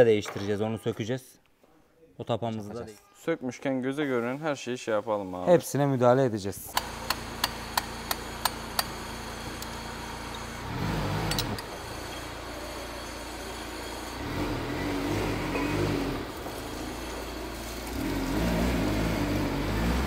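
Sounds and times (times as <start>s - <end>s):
sharp metallic hand tool clicks: 6.7s - 8.9s.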